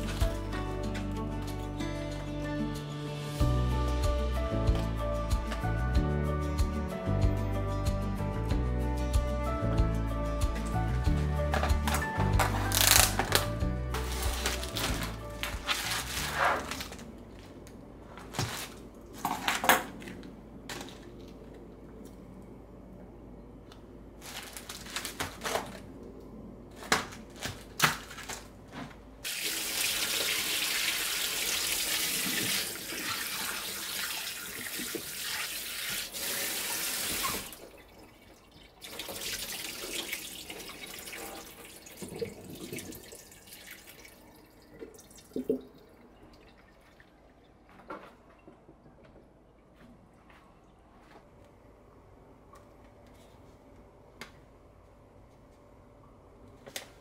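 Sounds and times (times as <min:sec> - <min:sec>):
kitchen tap running into sink: 0:29.2 - 0:47.5.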